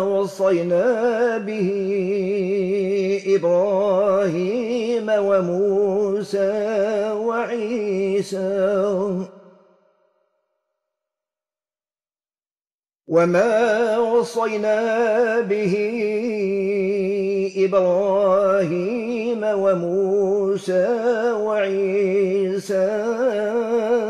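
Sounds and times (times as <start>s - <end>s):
man chanting melodically: 0.0s - 9.3s, 13.1s - 24.0s.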